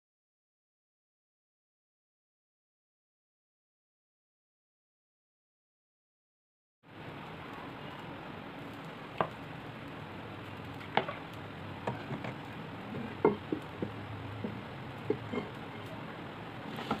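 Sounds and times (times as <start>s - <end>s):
oil hissing in frying pan: 6.9s - 17.0s.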